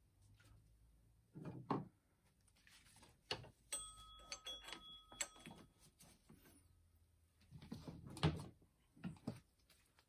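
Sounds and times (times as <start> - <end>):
faint steady high tone: 3.7 - 5.9.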